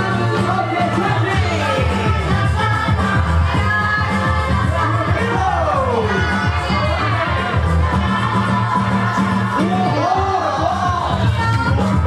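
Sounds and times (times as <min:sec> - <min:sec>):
dance music with sung vocal: 0:00.0 - 0:12.0.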